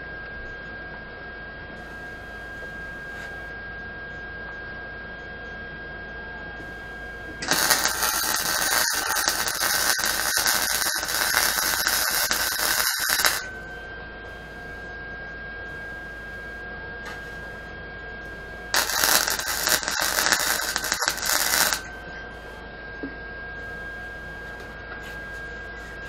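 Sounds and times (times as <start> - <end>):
steady high-pitched whine: 0.0 - 26.0
welder arc crackling: 7.4 - 13.6, 18.7 - 21.9.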